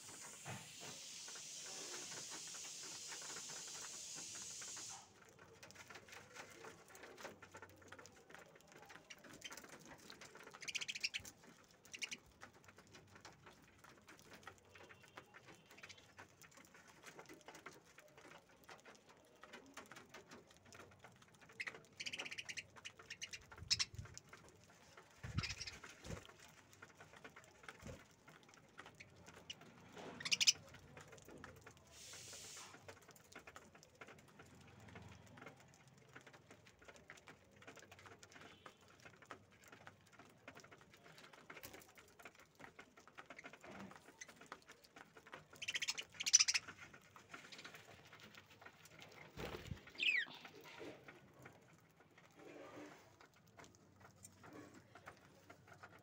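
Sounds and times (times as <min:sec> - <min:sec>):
budgerigars chirping: 0:22.0 - 0:23.9, 0:25.4 - 0:25.8, 0:30.2 - 0:30.6, 0:45.6 - 0:46.6, 0:50.0 - 0:50.4.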